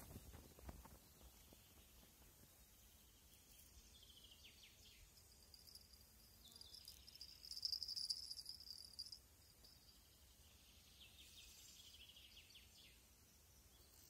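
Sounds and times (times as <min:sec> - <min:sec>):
bird-like chirps: 0:03.0 - 0:14.0
high-pitched insect trill: 0:04.6 - 0:10.3.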